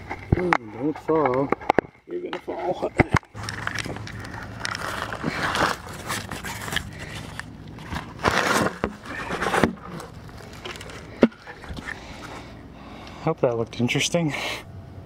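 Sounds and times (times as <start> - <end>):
digging tool scraping soil: 4.3 - 10.6.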